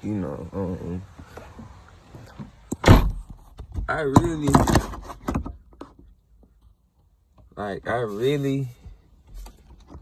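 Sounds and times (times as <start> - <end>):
voice: 0.0 - 1.1, 3.9 - 4.8, 7.6 - 8.8
knocks and rustling: 1.2 - 6.6.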